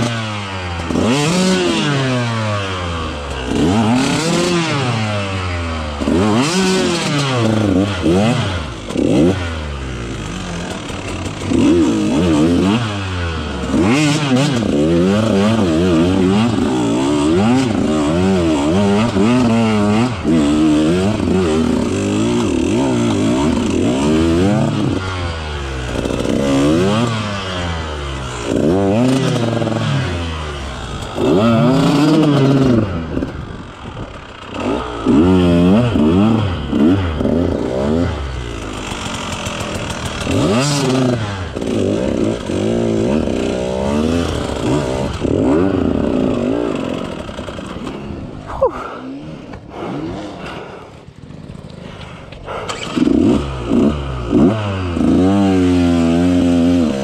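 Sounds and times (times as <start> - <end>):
two-stroke motorcycle engine revving: 0.0 - 57.0.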